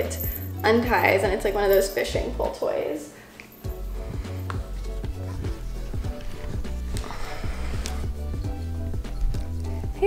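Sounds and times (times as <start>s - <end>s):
hip-hop music with bass line: 3.7s - 10.0s.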